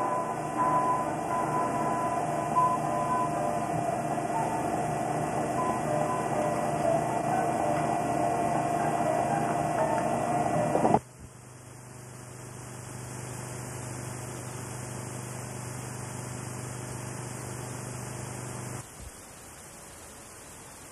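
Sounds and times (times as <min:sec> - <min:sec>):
loud sustained tone: 0:00.0 - 0:11.0
electronic hiss: 0:00.0 - 0:20.9
low mains hum: 0:00.0 - 0:20.9.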